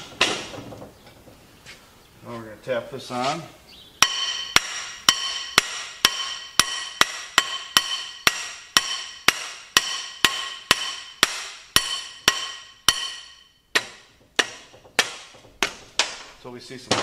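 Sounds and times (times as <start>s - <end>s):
hammer tapping metal: 4.0s - 17.0s.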